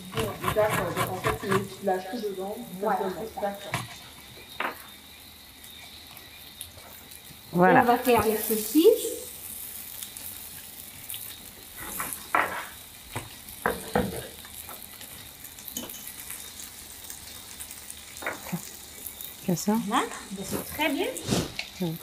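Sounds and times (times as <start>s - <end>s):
utensil knocking and scraping: 0.0s - 1.8s, 3.6s - 4.0s
vegetables sizzling in a pan: 0.0s - 22.0s.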